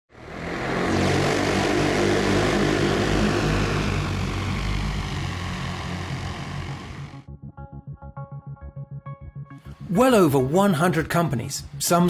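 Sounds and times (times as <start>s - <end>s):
aircraft propeller engine: 0.1s - 7.3s.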